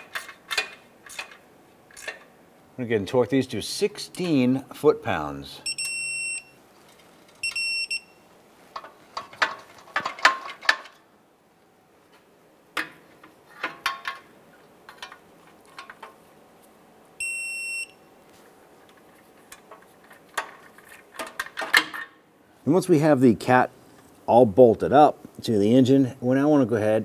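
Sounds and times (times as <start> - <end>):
torque wrench high beep: 5.6 - 6.6, 7.4 - 8.2, 17.2 - 18.1.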